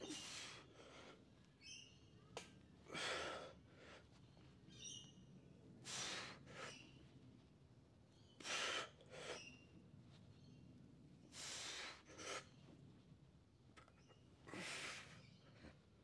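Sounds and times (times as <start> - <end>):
bird chirping: 1.6 - 2.3, 4.3 - 5.3.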